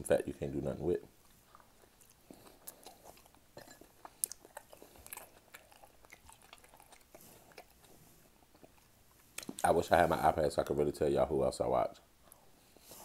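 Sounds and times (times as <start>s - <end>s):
person chewing food: 1.2s - 10.2s.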